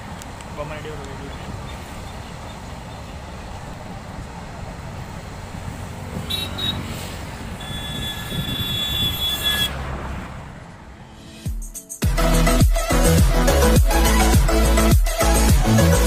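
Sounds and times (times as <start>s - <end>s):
freight train rumbling past: 1.5s - 11.4s
wheels squealing on rails: 6.1s - 9.8s.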